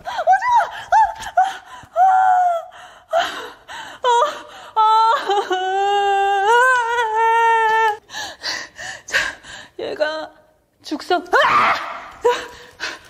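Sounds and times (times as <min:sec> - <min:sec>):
woman breathing: 0:08.0 - 0:09.8.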